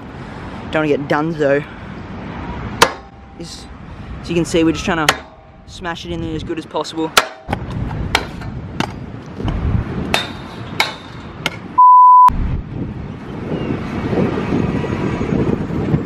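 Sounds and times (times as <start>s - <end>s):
outdoor noise rush: 0.0s - 16.0s
scooter clattering on metal rail: 7.2s - 9.1s, 10.1s - 11.7s
test-tone beep: 11.8s - 12.3s.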